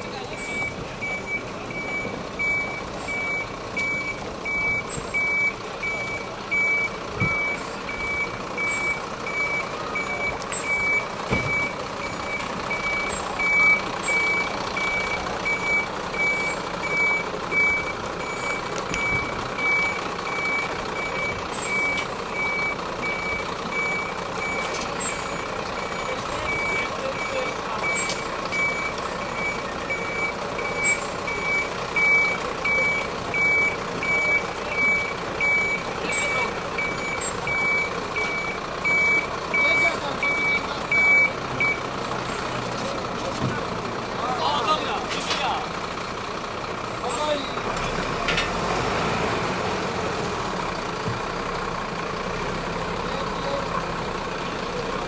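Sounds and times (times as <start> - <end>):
truck engine running: 0.0 - 55.0
reversing alarm beeps: 0.3 - 41.9.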